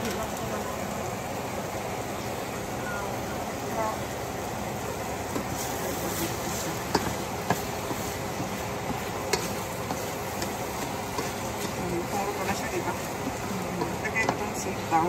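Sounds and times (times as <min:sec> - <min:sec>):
food sizzling in a pan: 0:00.0 - 0:15.0
spatula knocking against pan: 0:06.9 - 0:11.8, 0:13.8 - 0:14.6.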